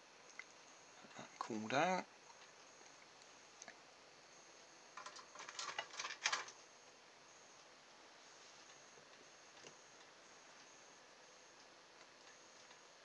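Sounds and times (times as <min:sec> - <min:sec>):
small clicks and rustles: 0:05.0 - 0:06.6.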